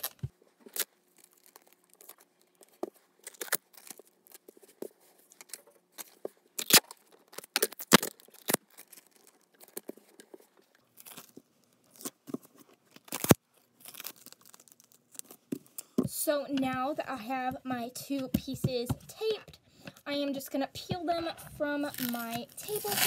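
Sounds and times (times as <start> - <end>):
masking tape ripping: 0.0 - 2.2, 3.2 - 4.4, 5.4 - 9.9, 12.9 - 15.4, 21.8 - 23.0.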